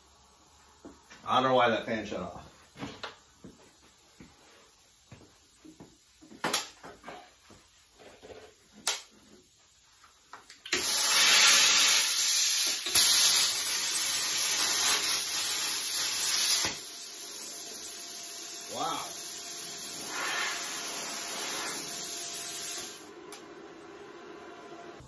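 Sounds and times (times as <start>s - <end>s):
plasma cutter hissing: 10.7s - 23.1s.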